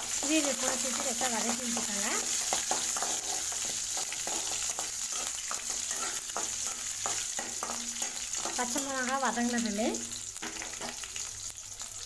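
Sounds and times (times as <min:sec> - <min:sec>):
food sizzling in hot oil: 0:00.0 - 0:12.0
metal spatula scraping pan: 0:00.1 - 0:08.8.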